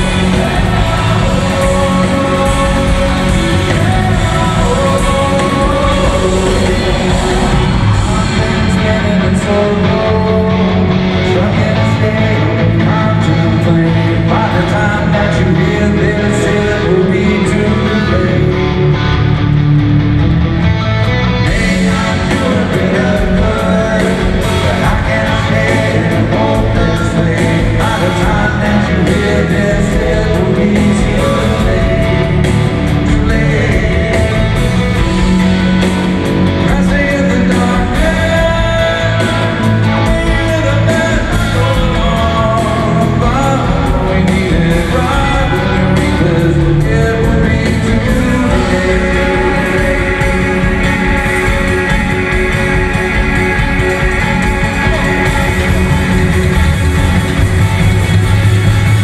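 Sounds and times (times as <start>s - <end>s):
man singing lead vocal: 0.0s - 19.3s, 21.3s - 57.9s
live rock band playing: 0.0s - 59.0s.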